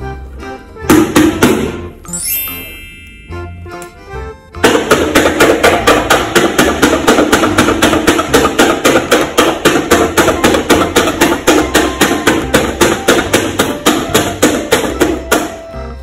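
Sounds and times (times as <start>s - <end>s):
background music: 0.0s - 16.0s
marker pen tapping on paper: 4.6s - 15.6s.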